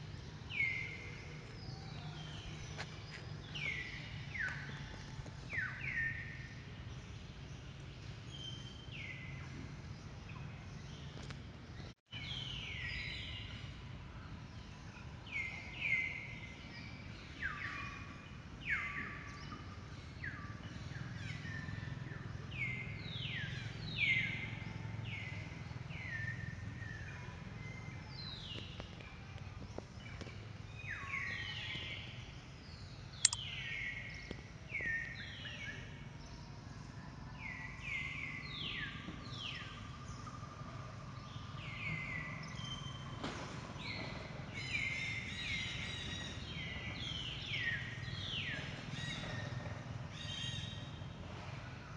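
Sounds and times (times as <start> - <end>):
sharp click: 33.2 - 33.4.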